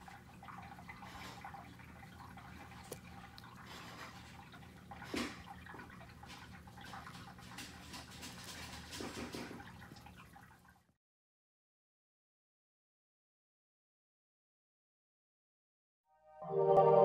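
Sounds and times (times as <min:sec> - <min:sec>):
small clicks and rustles: 0:06.2 - 0:10.2.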